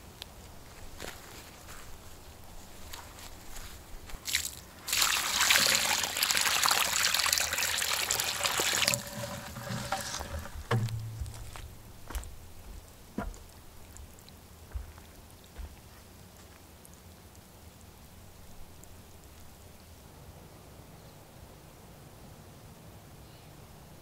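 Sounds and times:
water pouring onto soil: 0:04.1 - 0:11.9
water trickling and dripping: 0:04.1 - 0:19.8.

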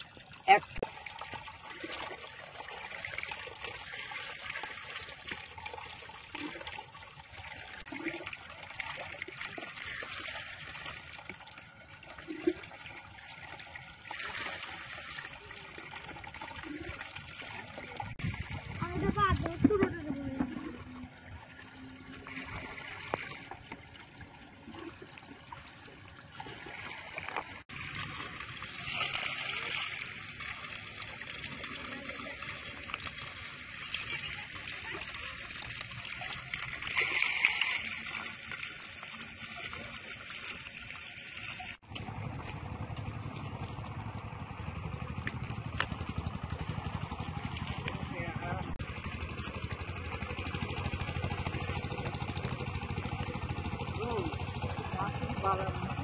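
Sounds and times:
water splashing and sloshing: 0:00.0 - 0:56.0
steady low rumble: 0:17.9 - 0:21.6.

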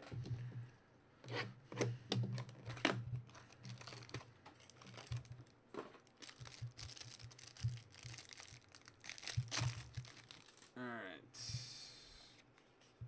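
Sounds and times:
plastic wrapping tearing and crinkling: 0:03.3 - 0:10.8.

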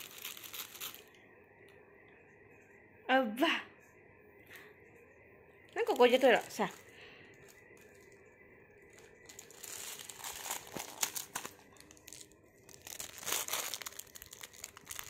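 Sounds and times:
plastic wrapper crinkling: 0:00.0 - 0:01.2, 0:05.7 - 0:08.2, 0:08.9 - 0:15.0.

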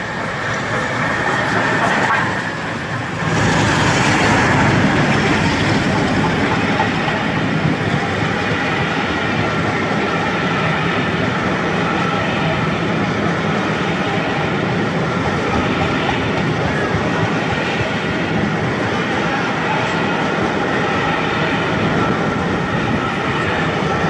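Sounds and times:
locomotives passing: 0:00.0 - 0:24.0
train wheels rumbling over rails: 0:00.0 - 0:24.0.

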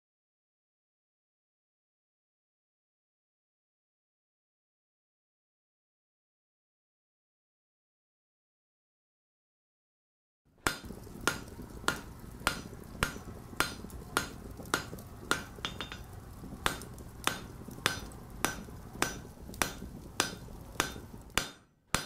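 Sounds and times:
hammer striking anvil: 0:10.6 - 0:22.0
steady low rumble: 0:10.8 - 0:21.4.

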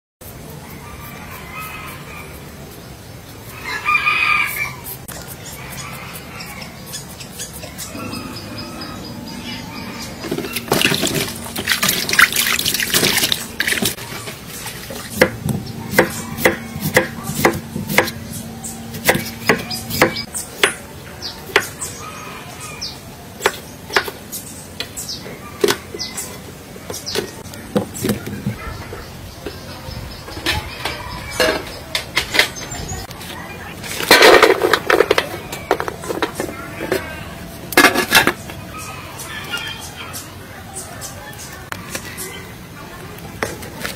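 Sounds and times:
rooster crowing: 0:03.6 - 0:04.9, 0:07.8 - 0:10.6
water splashing in bowl: 0:10.3 - 0:15.1
knife chopping on wooden board: 0:15.1 - 0:18.2, 0:18.9 - 0:20.8.

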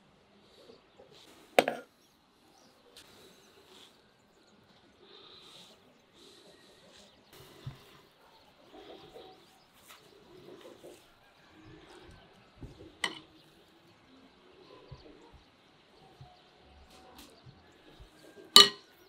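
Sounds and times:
doves cooing: 0:05.0 - 0:19.0.

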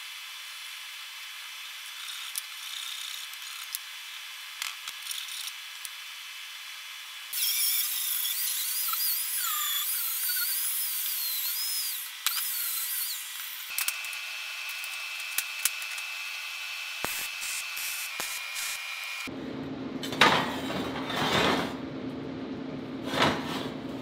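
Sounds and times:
power grinder cutting steel: 0:07.3 - 0:19.3.

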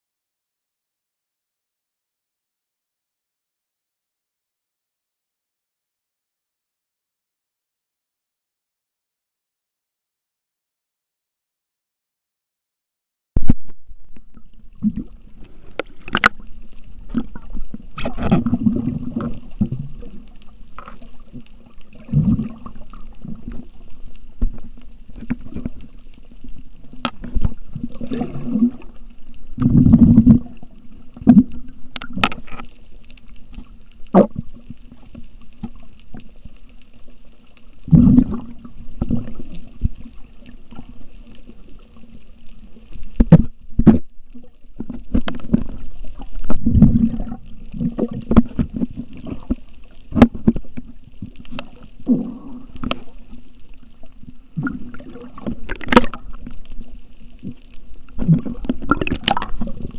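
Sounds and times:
underwater water sloshing: 0:13.4 - 0:59.9.

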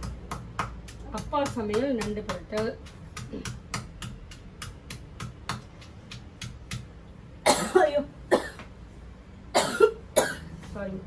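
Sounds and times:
stone pestle pounding in mortar: 0:00.0 - 0:07.0
person coughing: 0:07.4 - 0:08.6, 0:09.6 - 0:10.5.

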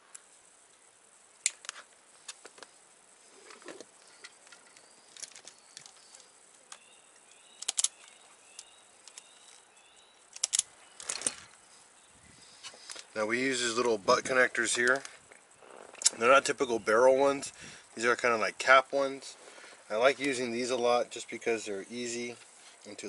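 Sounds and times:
clicks of wire and connectors: 0:07.6 - 0:09.6, 0:10.3 - 0:11.6.

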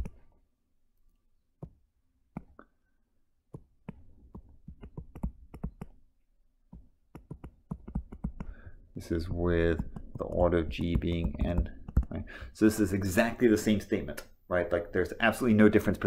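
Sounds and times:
stylus tapping on tablet screen: 0:01.6 - 0:02.7, 0:03.5 - 0:06.0, 0:06.7 - 0:08.7, 0:09.5 - 0:12.3.

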